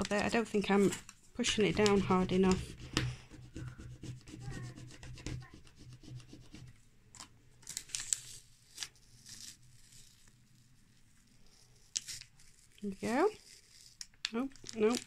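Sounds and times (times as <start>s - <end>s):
plastic card rubbing on tape: 0.6s - 6.8s, 11.2s - 14.2s
tape peeling with crackling rips: 7.2s - 10.7s, 11.5s - 15.0s.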